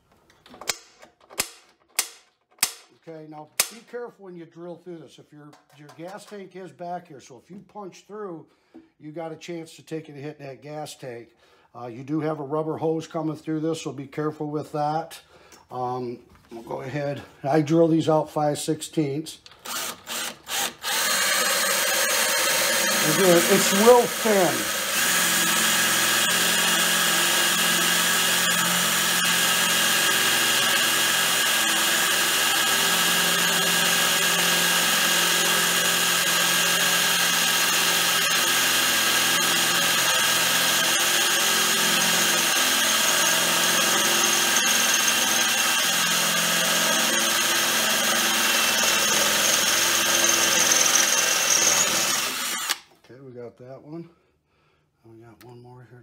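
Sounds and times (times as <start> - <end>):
power drill boring metal: 19.5 - 52.9.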